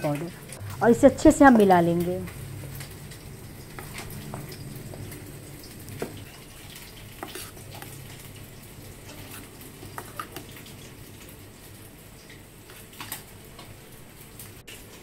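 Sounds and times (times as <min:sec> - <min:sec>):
low steady hum: 0:00.0 - 0:15.0
spoon stirring thick paste: 0:05.9 - 0:10.6.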